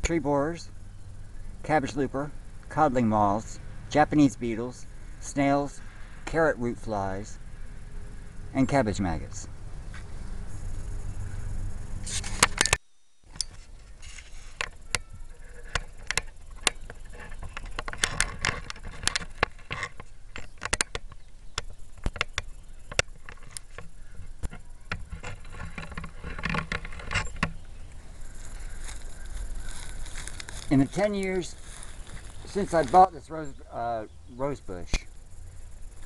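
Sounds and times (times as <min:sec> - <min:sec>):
rustling: 0:13.3 - 0:33.2
sharp clicks: 0:15.7 - 0:28.0.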